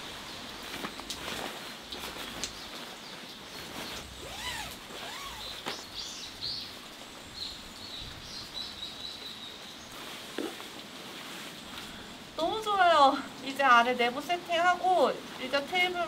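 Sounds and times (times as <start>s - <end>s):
tent clicks and rustles: 0.0s - 12.6s
light rain falling: 0.0s - 16.0s.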